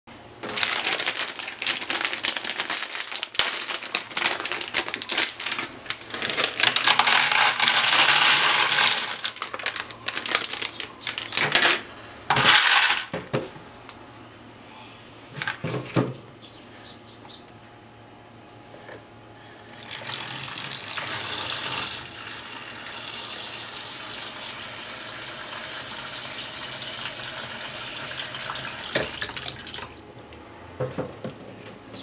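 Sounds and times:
plastic bag crinkling: 0.4s - 11.9s
dry pasta rattling into plastic: 0.4s - 13.1s.

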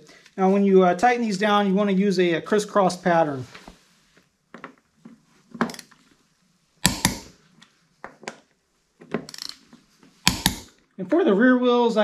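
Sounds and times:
torque wrench clicks: 6.8s - 7.3s, 9.3s - 9.6s, 10.2s - 10.7s.

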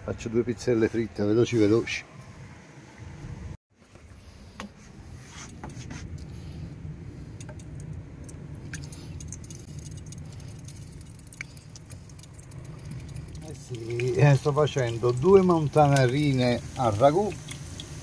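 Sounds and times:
dough frying in oil: 8.7s - 18.0s.

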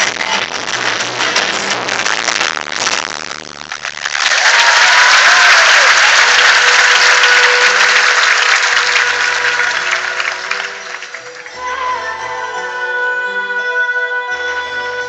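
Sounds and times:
audience applauding: 3.6s - 11.6s.

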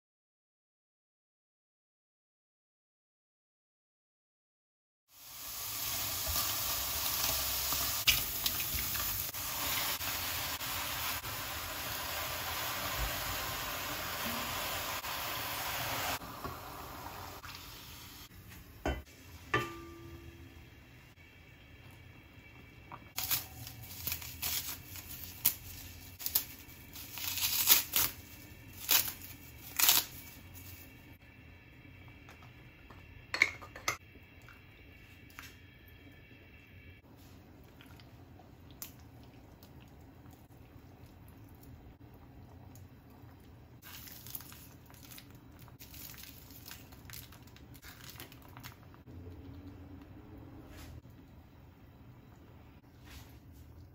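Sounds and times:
low steady hum: 18.3s - 27.0s
dried seaweed sheets tearing: 23.2s - 30.7s
chopped onion crackling and rustling: 23.2s - 31.0s, 43.8s - 48.9s.

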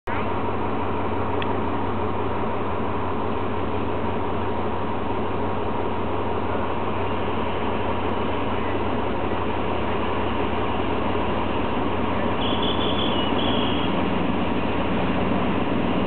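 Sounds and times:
diesel locomotive engine rumbling: 0.0s - 16.0s
high-pitched squeal: 12.4s - 14.0s.

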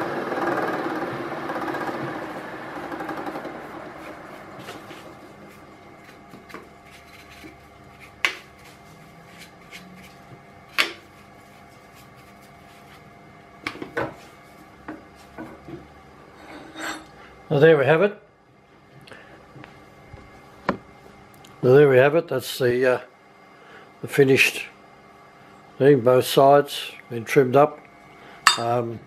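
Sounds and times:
milling machine humming: 0.0s - 6.0s, 16.1s - 17.2s
end mill cutting steel: 16.4s - 17.1s.

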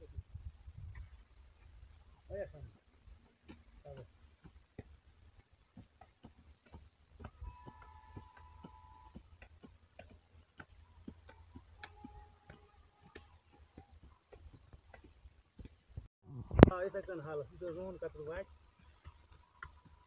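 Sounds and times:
hand hoe scraping soil: 2.6s - 15.8s
faint held tone: 7.4s - 9.2s.

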